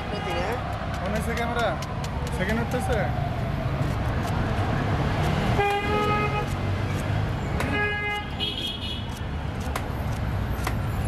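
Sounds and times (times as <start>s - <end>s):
vehicle horns honking: 5.6s - 6.5s, 7.6s - 9.1s.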